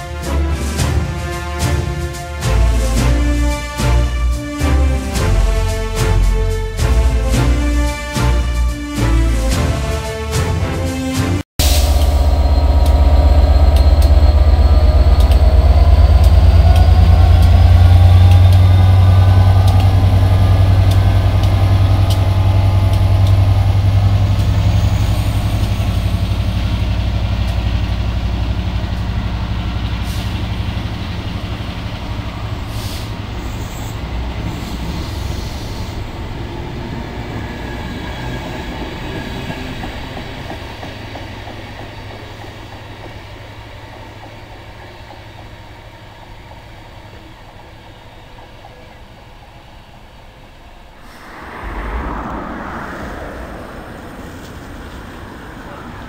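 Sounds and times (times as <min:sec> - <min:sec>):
train wheels rolling on track: 0:11.6 - 0:50.0
diesel locomotive engine working hard: 0:11.6 - 0:50.5.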